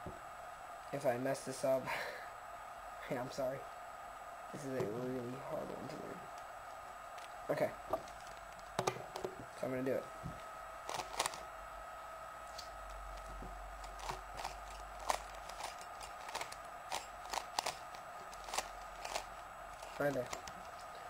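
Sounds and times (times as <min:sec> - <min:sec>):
faint steady hum: 0:00.0 - 0:21.0
puzzle cube clicking: 0:13.8 - 0:20.6.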